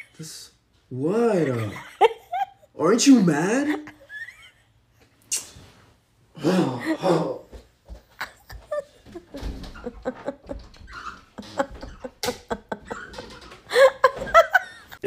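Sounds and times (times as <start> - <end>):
knocks and thumps: 7.8 - 15.0
closet door handled: 8.6 - 15.0.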